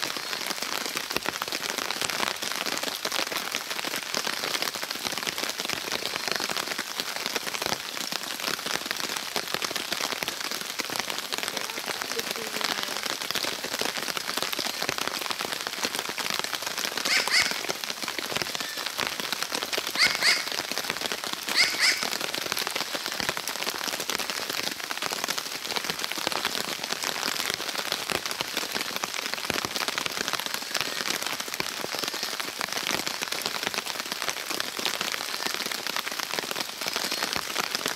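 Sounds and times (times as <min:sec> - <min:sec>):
rain falling on leaves: 0:00.0 - 0:37.9
crow calling: 0:17.0 - 0:17.8, 0:19.9 - 0:20.6, 0:21.5 - 0:22.2.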